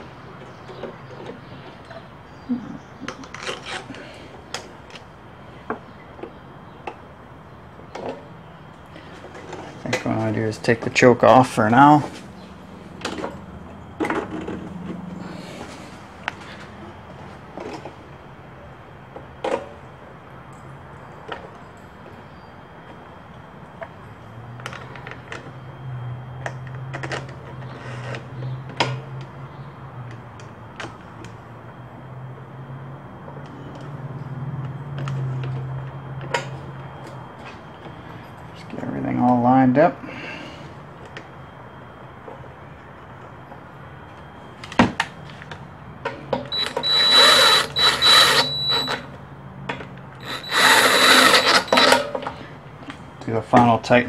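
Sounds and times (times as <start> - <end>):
steady low hum: 36.8 - 54.0.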